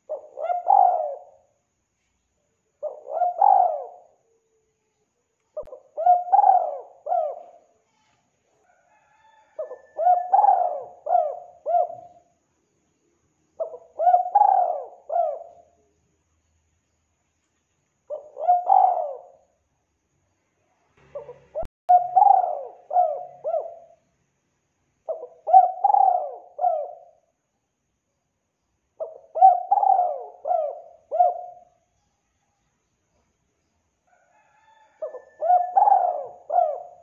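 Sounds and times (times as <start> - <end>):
dove cooing: 0.0 - 1.5, 2.8 - 4.3, 5.6 - 7.7, 8.8 - 12.3, 13.6 - 15.8, 18.1 - 19.5, 21.1 - 24.0, 25.1 - 27.3, 29.0 - 31.8, 34.4 - 37.0.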